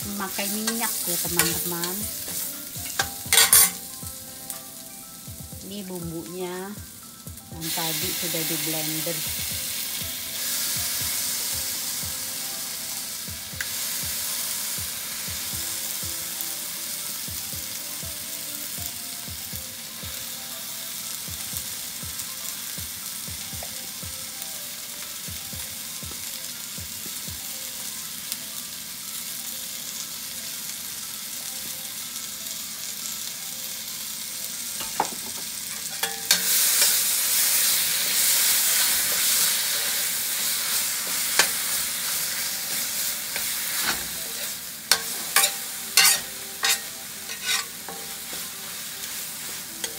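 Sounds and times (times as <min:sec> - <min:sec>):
paste sizzling in hot oil: 0:00.0 - 0:31.4, 0:32.2 - 0:49.9
metal ladle scraping wok: 0:44.9 - 0:48.2.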